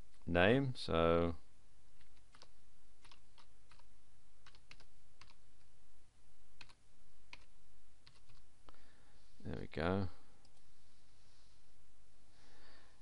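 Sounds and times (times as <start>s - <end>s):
keyboard typing: 2.0s - 5.4s, 6.6s - 8.5s.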